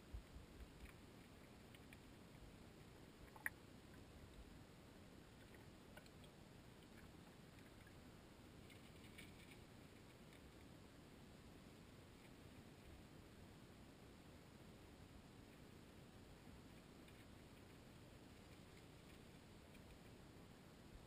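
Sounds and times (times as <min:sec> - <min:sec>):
small clicks and ticks: 0:00.0 - 0:04.5, 0:05.3 - 0:10.8, 0:16.4 - 0:20.2.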